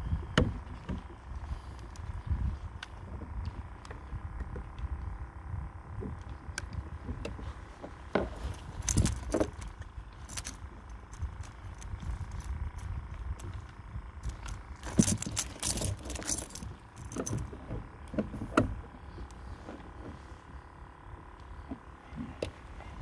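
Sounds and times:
fishing gear clicking and rattling: 8.1s - 20.2s.

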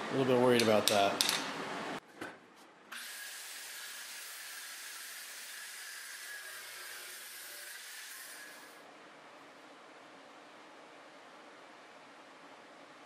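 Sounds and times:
chop saw cutting steel: 3.0s - 8.8s.

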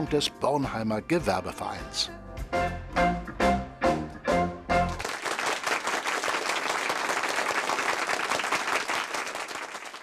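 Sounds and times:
soul band chords: 0.0s - 5.0s
crowd clapping and applauding: 4.9s - 10.0s.

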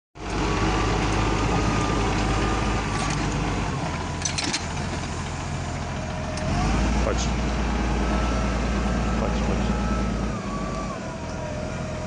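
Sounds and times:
tractor diesel engine running: 0.2s - 12.0s
metal rattle: 2.9s - 5.3s.

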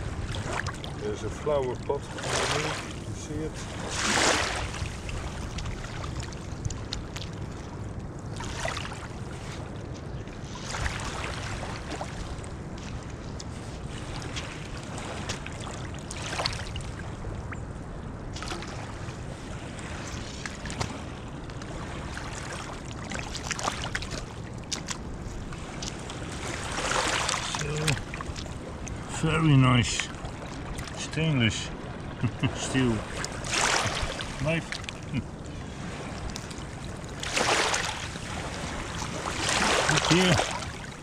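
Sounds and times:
wind rumble on microphone: 0.0s - 41.0s
small waves washing over gravel: 0.2s - 7.7s, 18.3s - 31.5s, 32.4s - 35.2s, 35.8s - 41.0s.

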